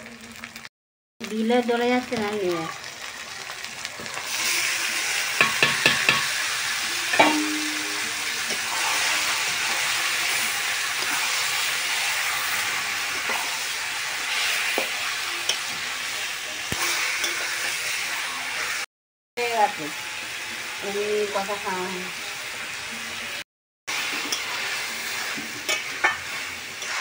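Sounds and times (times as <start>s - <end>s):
chicken sizzling in hot oil: 0.0s - 27.0s
metal spatula scraping pan: 7.0s - 13.7s, 24.1s - 27.0s
metal clinks on pan: 7.1s - 8.0s
ringing clank of metal: 7.2s - 8.1s.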